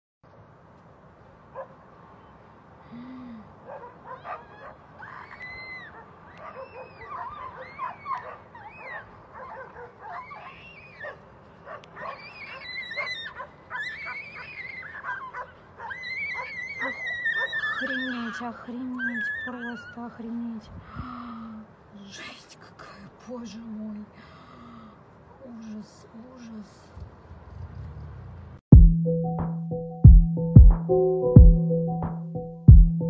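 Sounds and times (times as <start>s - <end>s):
dogs barking and yelping: 1.6s - 1.8s, 3.6s - 20.2s.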